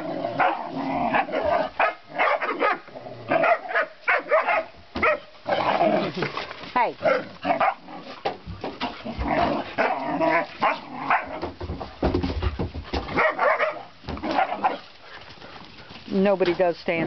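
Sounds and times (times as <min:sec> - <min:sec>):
puppies barking and yipping: 0:00.0 - 0:05.4, 0:08.6 - 0:11.5, 0:12.9 - 0:16.0.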